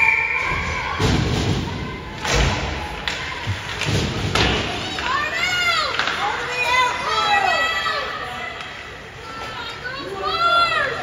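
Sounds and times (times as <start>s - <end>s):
puck and sticks thudding on ice: 2.2s - 6.8s.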